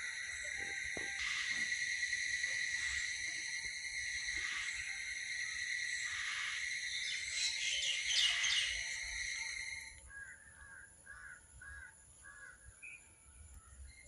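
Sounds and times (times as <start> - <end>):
birds chirping: 6.0 - 14.0.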